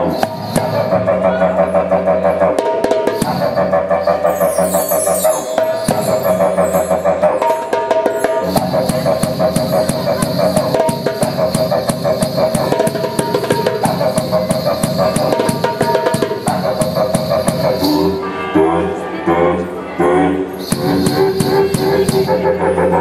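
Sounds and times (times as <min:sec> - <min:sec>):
didgeridoo droning: 0:00.0 - 0:23.0
hand drums beating: 0:07.4 - 0:17.9, 0:20.6 - 0:22.4.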